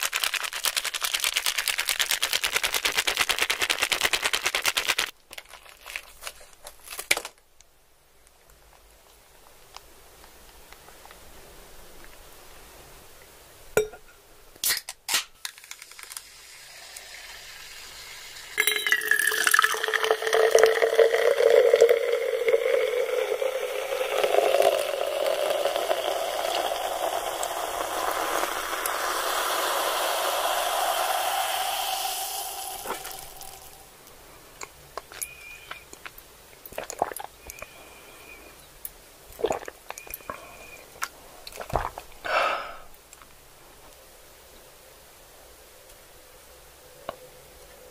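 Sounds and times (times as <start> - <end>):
sharp crackles: 0.0 - 7.4
liquid pouring into a container: 15.6 - 33.8.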